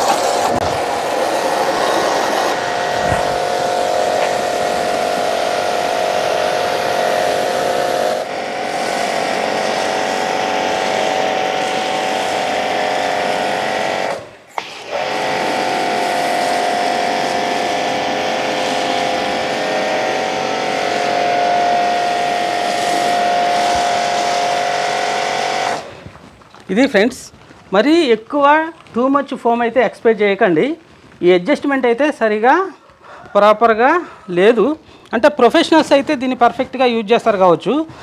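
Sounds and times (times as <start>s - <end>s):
foam spray hissing: 0.0s - 26.1s
pressure washer motor humming: 0.0s - 26.2s.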